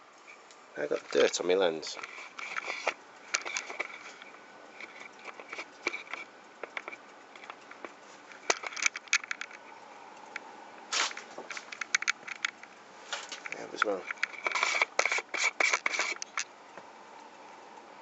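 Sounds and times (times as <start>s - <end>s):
faint steady background noise: 0.0s - 18.0s
camera handling clicks and rubbing: 2.0s - 9.6s, 11.0s - 16.5s.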